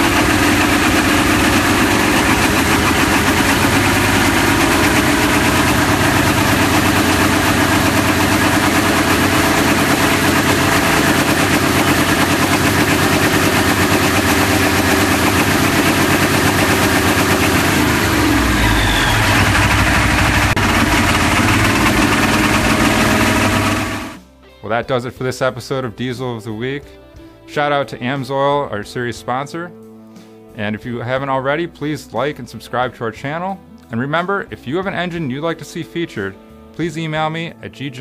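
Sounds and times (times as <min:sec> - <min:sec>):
diesel engine running: 0:00.0 - 0:24.3.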